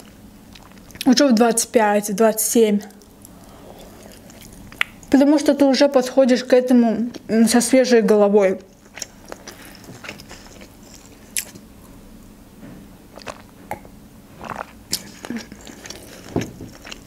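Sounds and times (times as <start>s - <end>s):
wet chewing: 2.9s - 5.2s, 8.6s - 11.6s, 13.1s - 13.8s, 14.4s - 17.0s.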